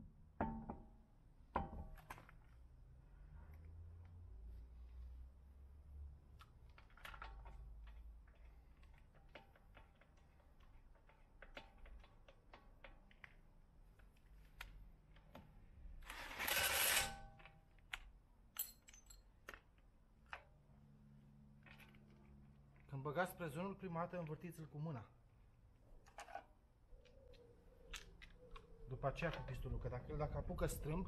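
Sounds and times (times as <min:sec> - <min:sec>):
metallic clicks of tools: 0:16.6 - 0:20.5.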